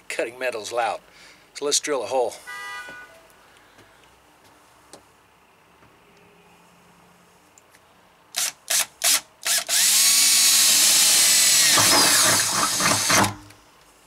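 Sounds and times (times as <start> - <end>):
cordless drill drilling sheet metal: 8.4 - 13.6.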